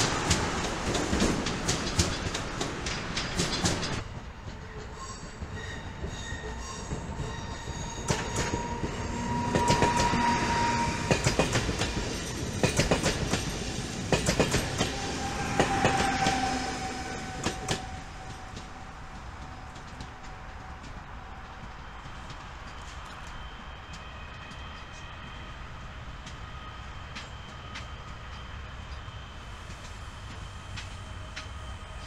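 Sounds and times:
train wheels clicking over rail joints: 0.0 - 32.0
high wheel squeal: 4.9 - 12.4, 14.6 - 20.6.

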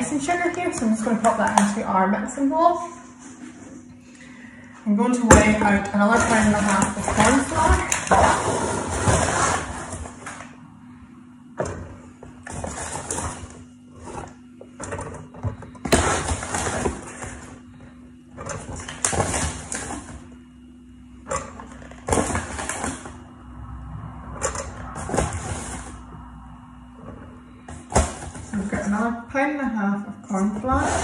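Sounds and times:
low hum: 0.0 - 31.0
metal scoop scraping plastic tub: 5.3 - 10.4, 24.4 - 26.1, 30.3 - 31.0.

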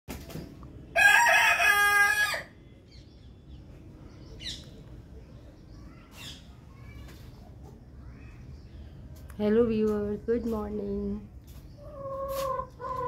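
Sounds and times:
rooster crowing: 1.0 - 2.6.

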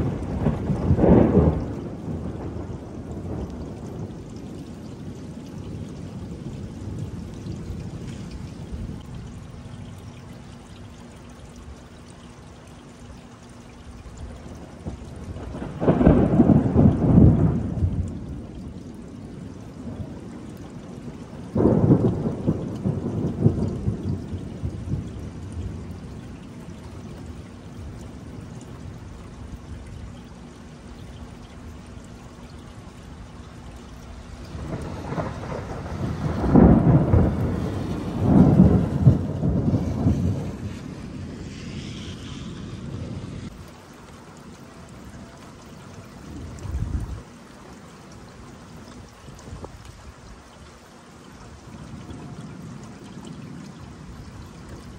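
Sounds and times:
thunder rumbling: 0.0 - 9.0, 14.2 - 29.0, 33.9 - 43.6
steady rain: 0.0 - 54.9.

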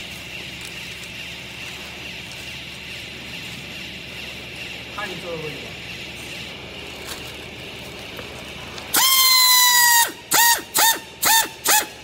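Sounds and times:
pneumatic strapping tool whining: 6.0 - 12.0.

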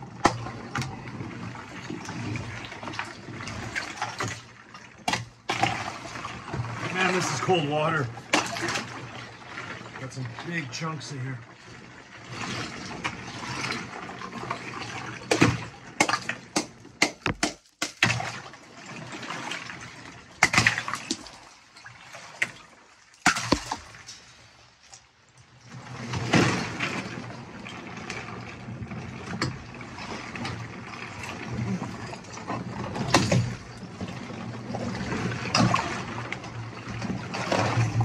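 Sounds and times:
water sloshing: 0.0 - 38.0
hammer cracking ice: 16.0 - 18.2
ice chunks knocking: 16.0 - 18.2, 23.2 - 23.9.

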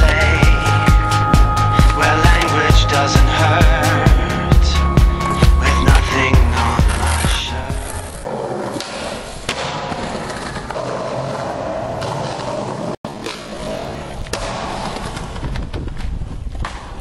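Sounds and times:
skateboard wheels rolling on concrete: 5.0 - 17.0.

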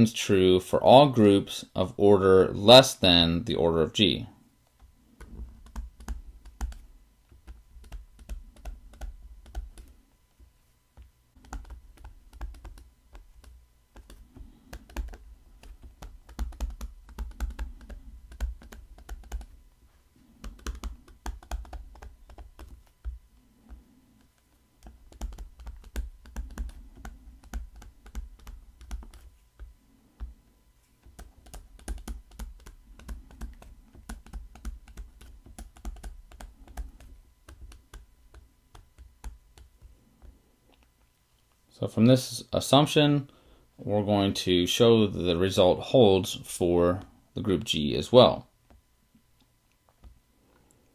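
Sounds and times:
stylus tapping and scratching on tablet: 4.6 - 41.0, 49.8 - 50.2.

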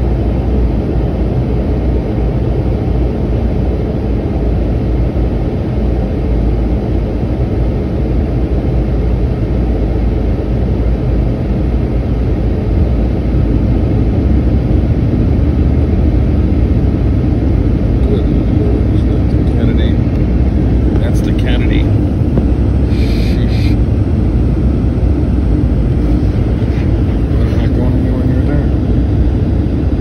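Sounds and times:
airliner cabin roar: 0.0 - 30.0.

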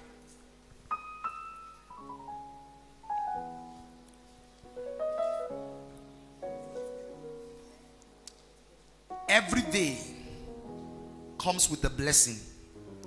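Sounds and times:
keyboard playing soft chords: 0.0 - 13.0.

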